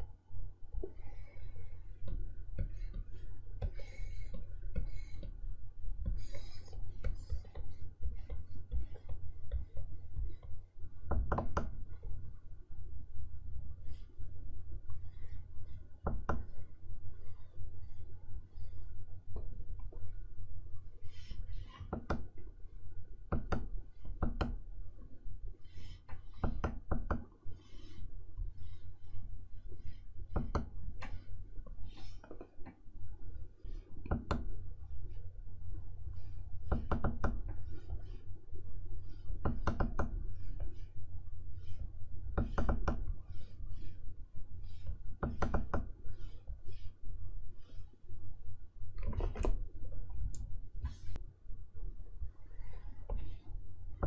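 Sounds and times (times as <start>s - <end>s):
low steady hum: 0.0s - 54.0s
stylus scratching on screen: 0.8s - 10.5s, 27.5s - 32.8s, 33.6s - 38.3s, 39.0s - 48.0s
stylus tapping on screen: 2.0s - 5.4s.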